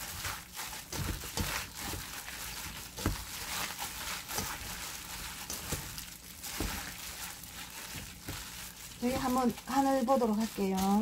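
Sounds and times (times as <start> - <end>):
wet squishing and crinkling: 0.0 - 11.0.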